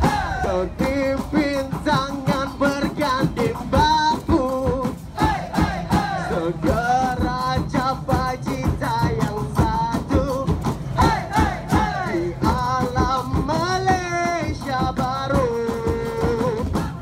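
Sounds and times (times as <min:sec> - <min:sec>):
live band playing: 0:00.0 - 0:05.2
drum beat: 0:00.0 - 0:17.0.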